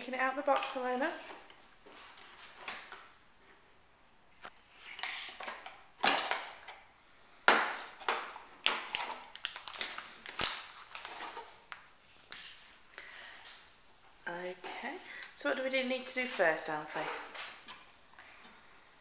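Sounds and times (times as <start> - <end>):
packaging rustling and crinkling: 7.8 - 12.8.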